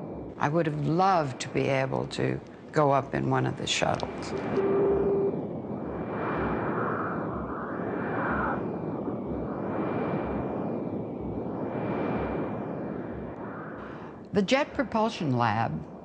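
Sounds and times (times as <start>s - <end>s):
slow whooshing sweep: 0.0s - 1.5s, 3.5s - 14.4s
low electronic pulses: 0.0s - 16.0s
rumbling hiss: 0.0s - 16.0s.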